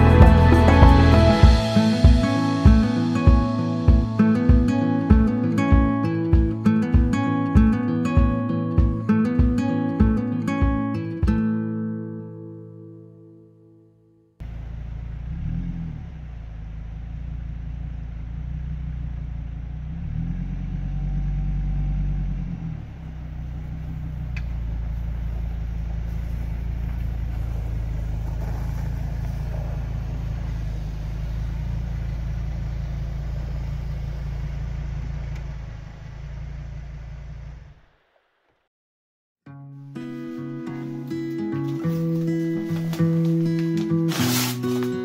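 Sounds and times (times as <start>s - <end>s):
vehicle engine rumbling: 0.0s - 7.0s, 14.4s - 38.4s.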